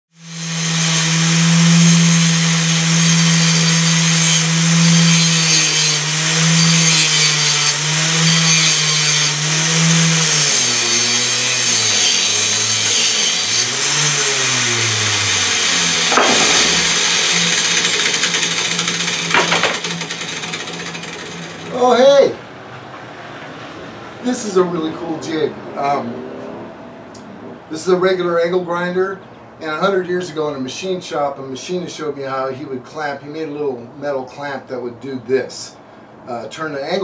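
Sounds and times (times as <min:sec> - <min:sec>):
metal grinding on disc: 0:00.2 - 0:21.7
grinder motor whining: 0:00.2 - 0:21.8.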